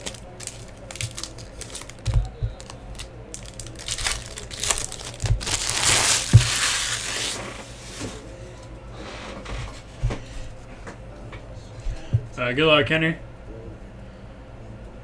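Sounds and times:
foil wrappers crinkling: 0.0s - 8.2s.

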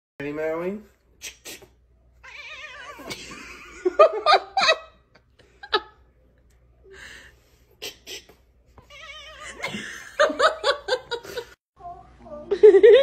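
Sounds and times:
cat yowling: 2.2s - 3.1s, 8.8s - 9.6s
person laughing: 9.4s - 11.5s.

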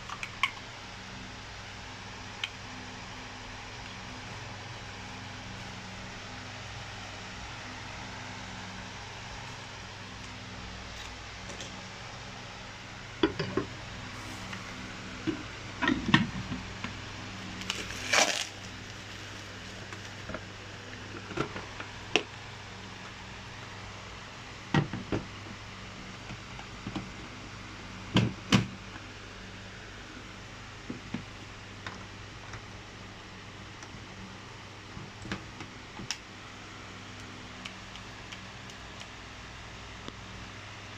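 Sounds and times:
steady low hum: 0.0s - 40.9s
plastic wrapping rustling: 17.5s - 20.3s.

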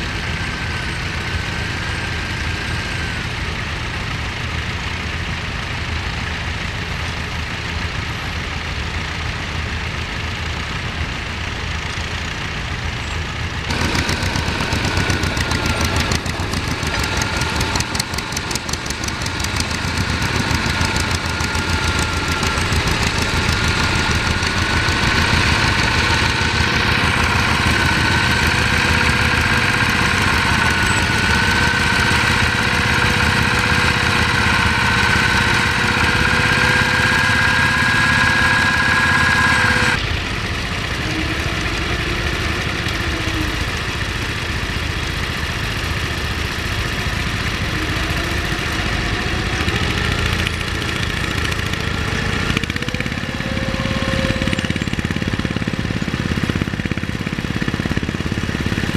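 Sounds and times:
small tractor engine running: 0.0s - 58.9s
tractor engine running: 0.0s - 58.9s
high whine rising in pitch: 20.4s - 40.0s.

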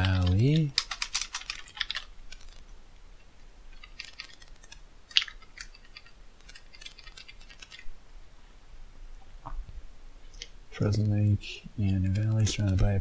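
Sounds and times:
typing on keyboard: 0.0s - 2.6s, 3.8s - 7.8s, 11.9s - 13.0s.

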